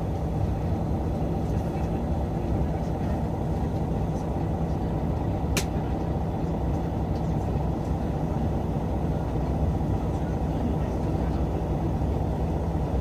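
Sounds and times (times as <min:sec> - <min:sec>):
bus engine and road rumble: 0:00.0 - 0:13.0.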